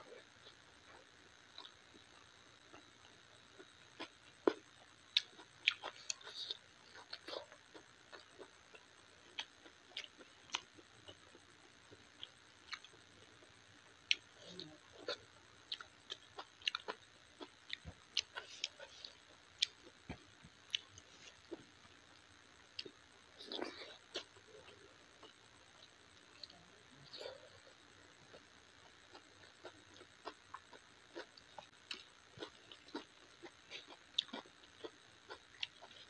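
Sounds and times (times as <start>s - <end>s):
chewing smacks: 29.1s - 36.0s.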